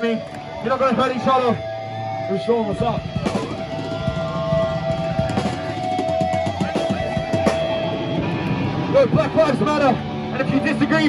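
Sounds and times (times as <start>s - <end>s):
hardcore band playing loud: 0.0s - 11.0s
drum hits: 3.0s - 9.3s.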